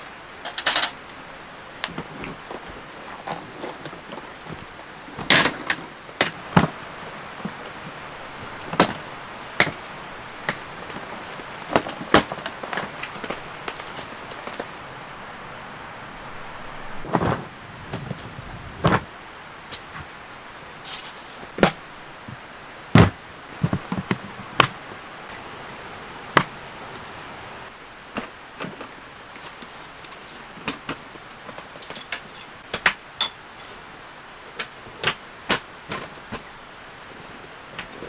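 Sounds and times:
folding table unfolding: 1.8s - 14.8s
plastic cases knocking: 23.0s - 24.8s.

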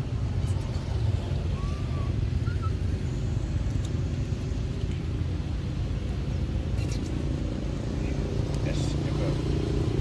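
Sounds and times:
steady low rumble: 0.0s - 10.0s
faint high chirp: 1.5s - 3.2s.

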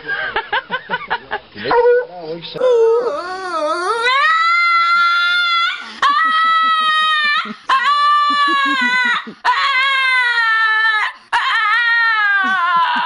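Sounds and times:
dog whining howls: 1.7s - 13.0s.

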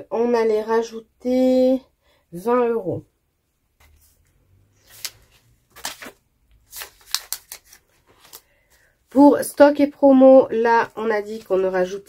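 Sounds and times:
paper and plastic rustling: 3.8s - 9.6s, 10.8s - 12.0s.

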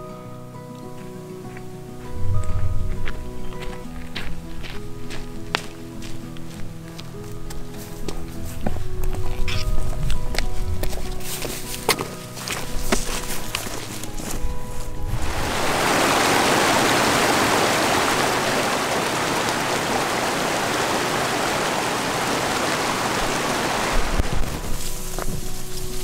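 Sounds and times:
stream rushing over rocks: 9.2s - 26.0s.

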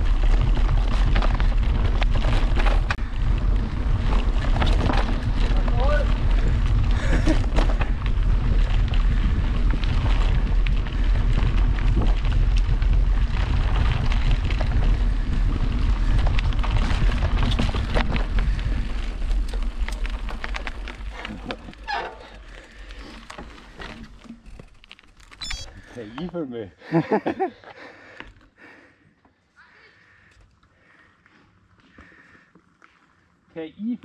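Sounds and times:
wind rumbling on microphone: 0.0s - 24.8s
bike clattering over trail: 0.0s - 26.3s.

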